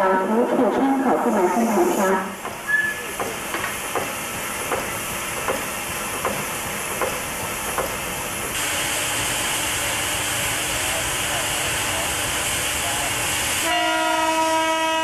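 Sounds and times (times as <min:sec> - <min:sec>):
steam locomotive hissing: 0:00.5 - 0:15.0.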